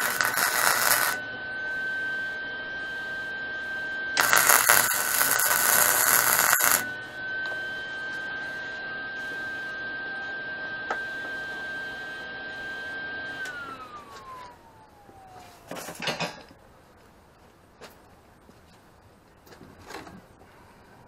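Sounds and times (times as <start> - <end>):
power tool motor whining: 0.0 - 15.3.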